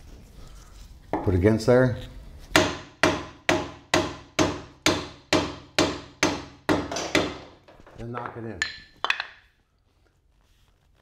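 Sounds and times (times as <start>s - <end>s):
hammer striking wood block: 2.5s - 9.5s.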